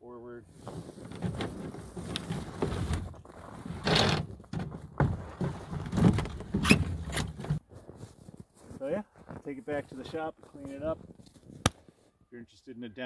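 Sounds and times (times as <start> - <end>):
track clattering on wooden ramp: 0.9 - 7.6.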